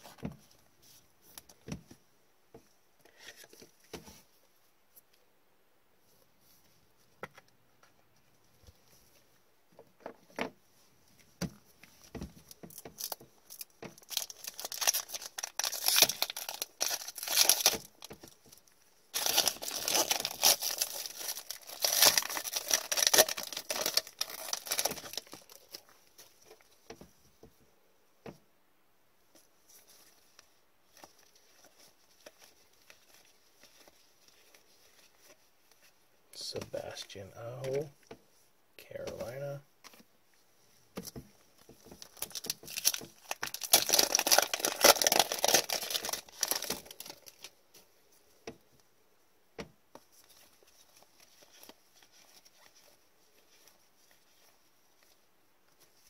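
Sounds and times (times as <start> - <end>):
foil wrapper crinkling: 12.7 - 26.4, 41.8 - 47.5.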